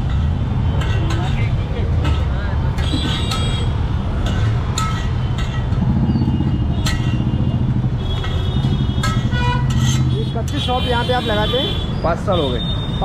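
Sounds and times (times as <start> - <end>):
vehicle engine humming: 0.0 - 13.0
metal spatula clinking on griddle: 9.0 - 10.6.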